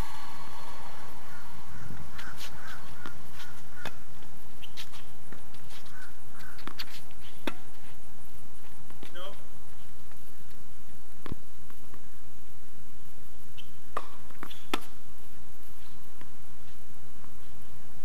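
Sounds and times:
tennis ball struck by rackets: 1.8 - 4.1, 6.5 - 7.7, 13.6 - 15.0
ball bouncing on hard court: 1.9 - 7.9, 13.6 - 15.0.

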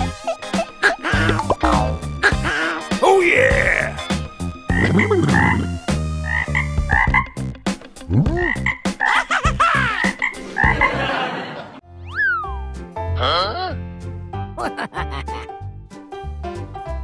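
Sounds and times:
toad croaking: 4.7 - 7.4, 8.3 - 9.1.

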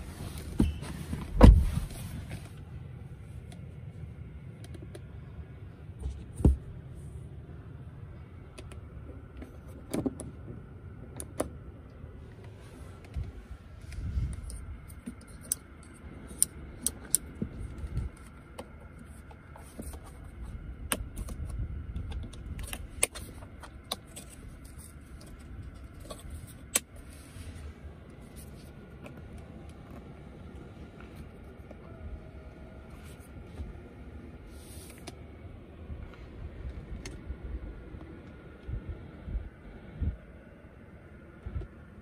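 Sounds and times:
low handling rumble: 0.0 - 19.5.

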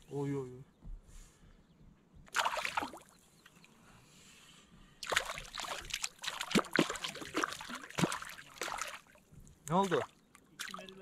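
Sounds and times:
fish splashing in water: 2.3 - 3.2, 5.0 - 11.0.

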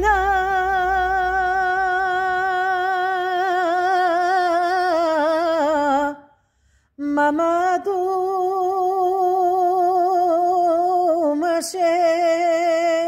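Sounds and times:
woman singing unaccompanied: 0.0 - 6.2.

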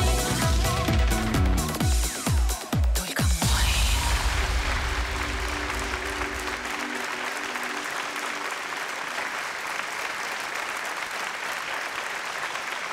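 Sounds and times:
audience applauding: 4.8 - 12.9.

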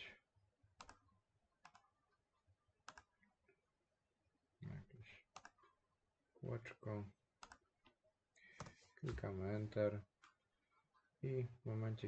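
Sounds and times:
computer mouse clicks: 0.8 - 1.0, 1.6 - 1.9, 2.8 - 3.2, 5.3 - 5.6, 7.4 - 7.6.

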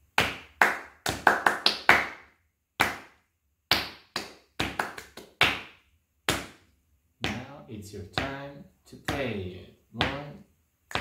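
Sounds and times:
hand claps: 0.0 - 7.5.

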